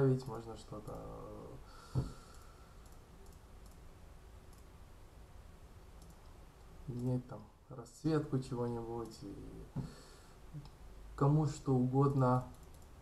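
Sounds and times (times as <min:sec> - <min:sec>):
faint room noise: 0:00.0 - 0:13.0
computer mouse clicking: 0:00.2 - 0:01.1, 0:01.9 - 0:03.9, 0:04.5 - 0:04.7, 0:06.0 - 0:07.2, 0:09.0 - 0:09.3, 0:12.1 - 0:13.0.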